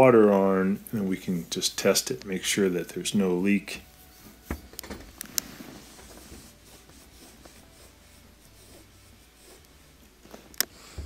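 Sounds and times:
hands rubbing and scraping: 5.3s - 10.5s.

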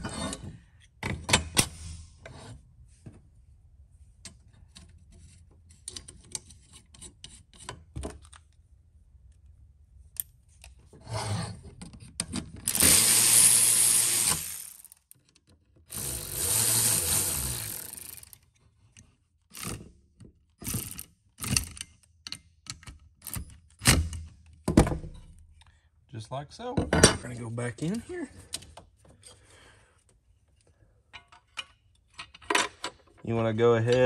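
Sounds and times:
tools clicking and knocking: 4.2s - 8.6s, 11.8s - 25.2s, 31.1s - 33.2s.

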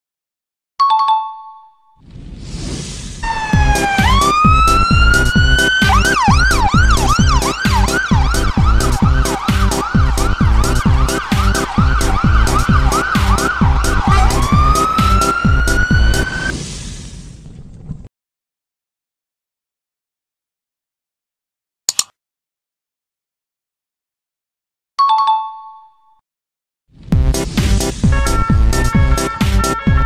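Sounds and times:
fire engine siren: 3.2s - 16.5s
steady beat: 3.4s - 16.3s, 27.2s - 30.0s.

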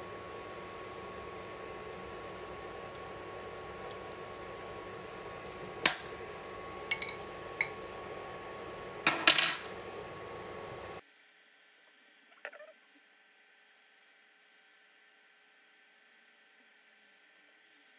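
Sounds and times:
induction hob humming: 0.0s - 11.0s
kitchenware clinking: 6.8s - 7.8s, 9.1s - 9.7s
glass bowl clinking: 6.9s - 7.8s.

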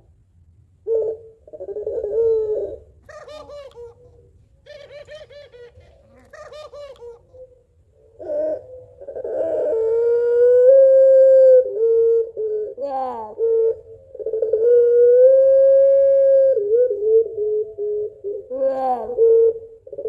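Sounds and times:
dove cooing: 0.8s - 20.0s
dove rolling laughing notes: 1.6s - 13.8s.

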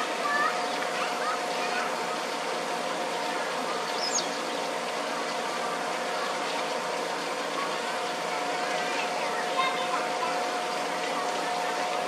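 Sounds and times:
mechanical hum: 0.0s - 12.0s
high bird chirp: 4.0s - 4.3s.

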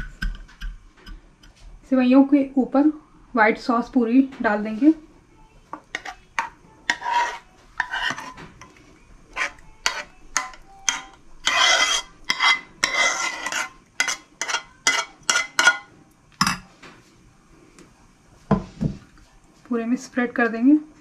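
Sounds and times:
metal spoon scraping pot: 5.9s - 15.9s.

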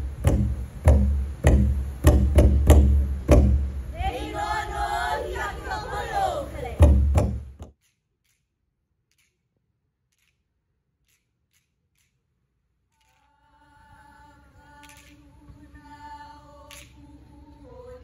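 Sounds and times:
loud voices: 3.9s - 6.9s
voices chanting a cappella: 3.9s - 7.0s, 13.3s - 18.0s
music: 13.0s - 18.0s.

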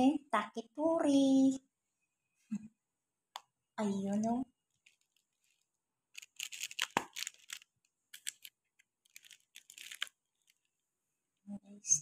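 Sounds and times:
plastic bag rustling and crinkling: 4.7s - 10.8s.

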